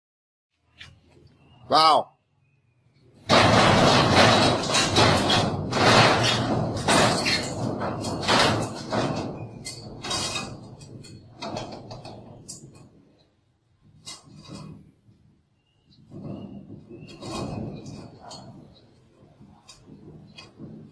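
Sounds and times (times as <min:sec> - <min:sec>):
metal gate rattling and banging: 0:03.1 - 0:15.2, 0:15.8 - 0:20.9
dog claws scraping metal gate: 0:03.3 - 0:13.0, 0:13.9 - 0:15.0, 0:16.0 - 0:20.9.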